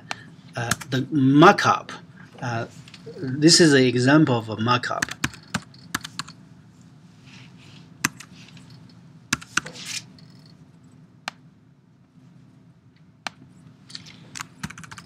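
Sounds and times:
low steady hum: 0.0s - 15.0s
computer keyboard keystrokes: 5.0s - 6.4s, 14.3s - 15.0s.

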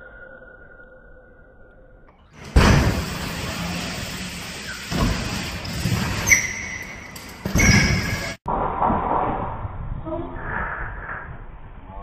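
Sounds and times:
bike tyres rolling on wooden ramp: 2.4s - 8.4s
short high squeak: 6.1s - 8.4s.

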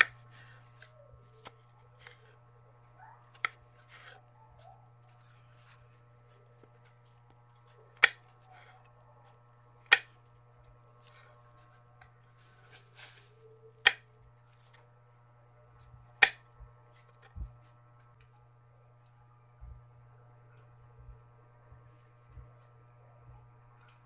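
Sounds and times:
steady low hum: 0.0s - 24.0s
plastic bag crinkling: 12.5s - 13.6s.

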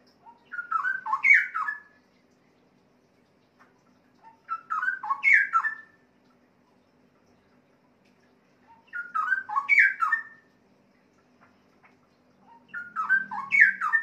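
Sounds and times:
bird singing whistled notes: 0.4s - 2.0s, 4.4s - 6.0s, 8.8s - 10.4s, 12.5s - 14.0s.

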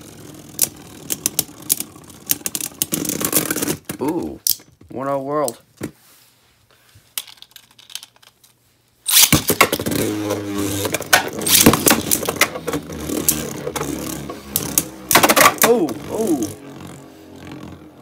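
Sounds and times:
spinning tops whirring: 0.0s - 3.6s, 9.1s - 18.0s
spinning tops clicking hits: 10.7s - 15.8s.

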